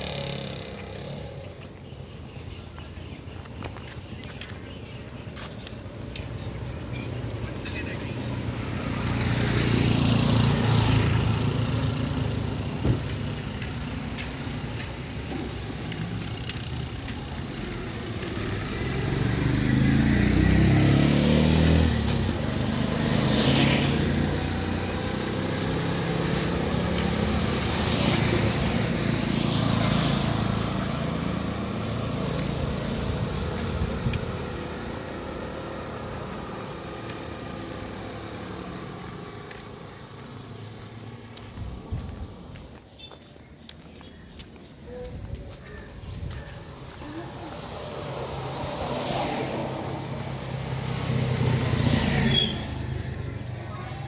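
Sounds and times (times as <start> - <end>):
vehicles passing: 0.0 - 54.0.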